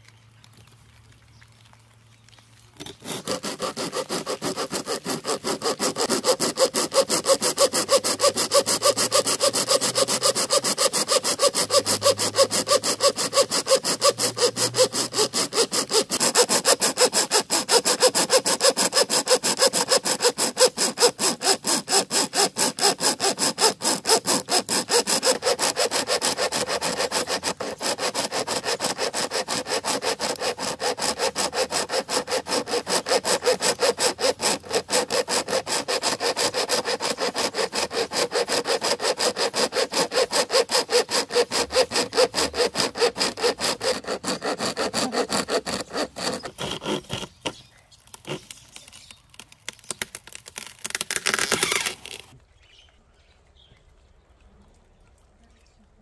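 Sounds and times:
saw chain rasping through wood: 2.8s - 49.2s, 49.9s - 52.4s.

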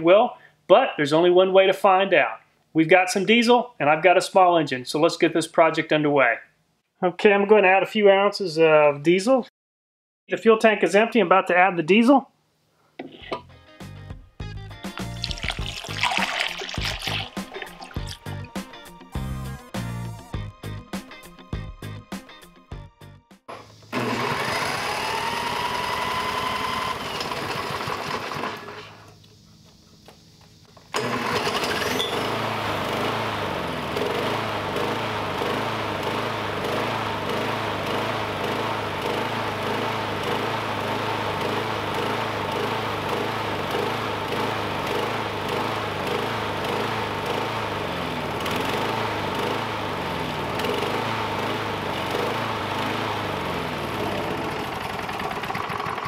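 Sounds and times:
small engine running: 15.2s - 18.3s, 23.5s - 56.0s.

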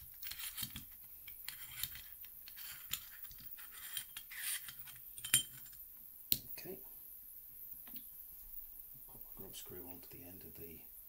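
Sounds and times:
metal clicks and scrapes: 0.0s - 5.8s.

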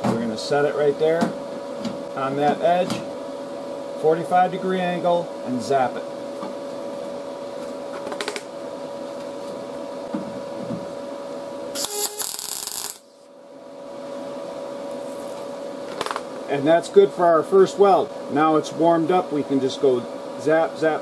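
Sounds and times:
welder arc crackling: 11.8s - 13.2s.

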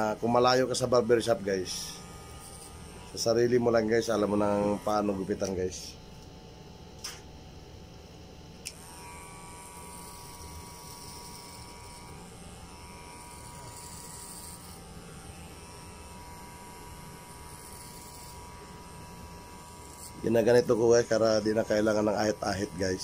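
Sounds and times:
electric hair clipper running: 0.0s - 6.3s, 8.6s - 23.0s
sharp click: 7.0s - 7.3s.

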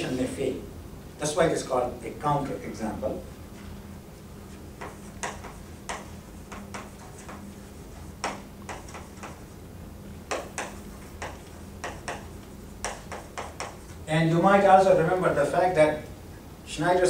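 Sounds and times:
chalk tapping on blackboard: 4.5s - 9.6s, 10.2s - 14.0s.

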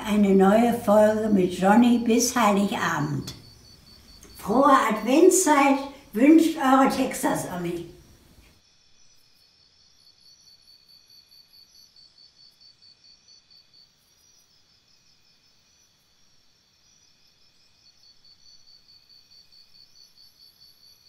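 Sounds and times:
insect chirping: 0.0s - 21.0s.

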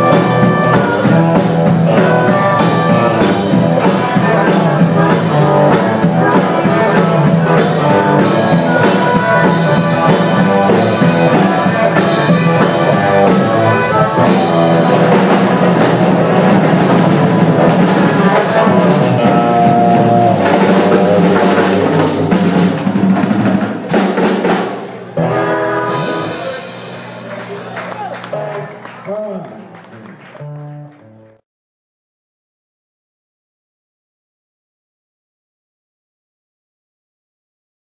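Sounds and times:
harmonica: 0.0s - 21.7s
drum kit: 0.0s - 31.2s
bass guitar: 0.0s - 31.4s
electric guitar: 0.0s - 31.4s.

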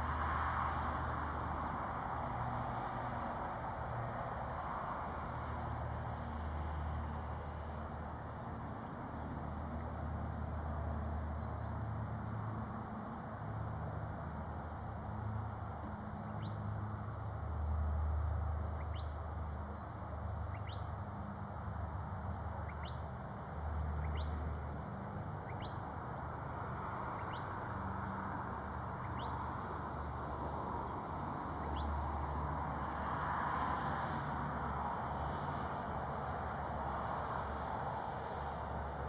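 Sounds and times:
bird chirping: 18.8s - 19.9s, 20.5s - 21.0s, 22.6s - 23.1s, 23.8s - 24.4s, 25.4s - 25.8s, 27.2s - 28.2s, 29.0s - 30.2s, 31.6s - 32.0s.

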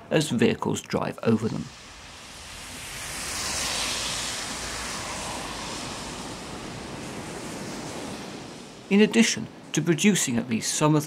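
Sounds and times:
road traffic passing: 1.6s - 8.9s.

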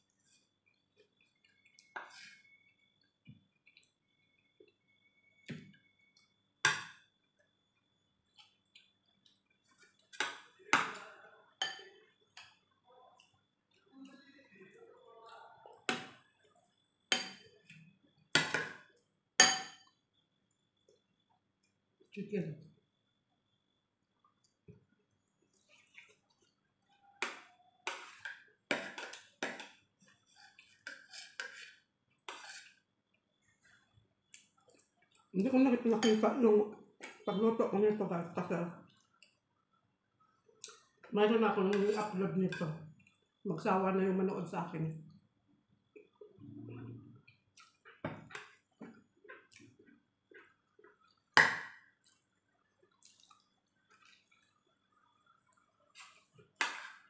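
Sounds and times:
spoon clinking against plate: 11.6s - 12.6s, 17.1s - 17.5s, 19.4s - 20.0s, 35.9s - 36.4s
fork scraping a ceramic plate: 30.2s - 32.8s
wet chewing and lip smacks: 47.3s - 48.0s, 52.0s - 56.2s.

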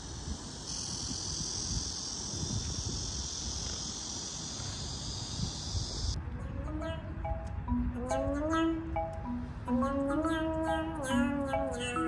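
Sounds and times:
insect chorus drone: 0.0s - 6.2s.

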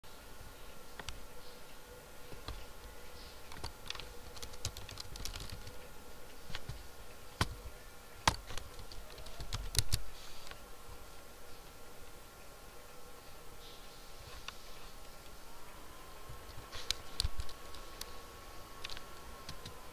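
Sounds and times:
computer keyboard keystroke clicks: 3.5s - 5.8s, 8.2s - 10.0s, 18.8s - 19.8s.

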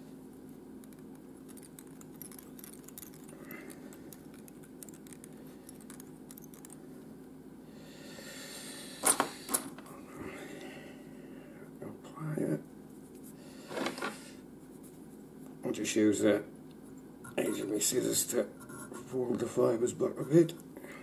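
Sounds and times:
steady low hum: 0.0s - 21.0s
small tools ticking: 1.5s - 6.8s.

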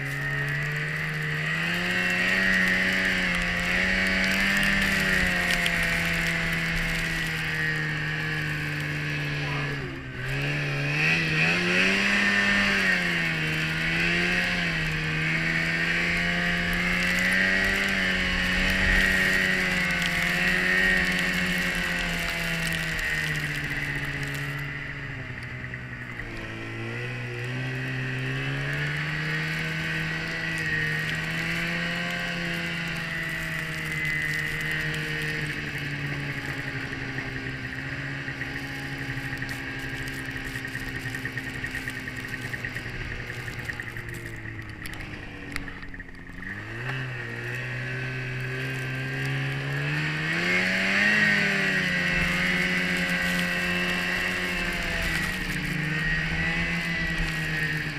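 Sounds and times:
snowmobile engine running: 0.0s - 57.9s.

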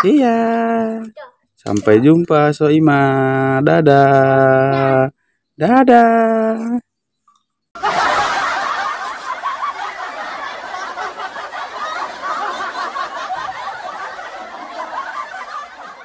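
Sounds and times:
crowd laughing and chattering: 7.8s - 16.0s.

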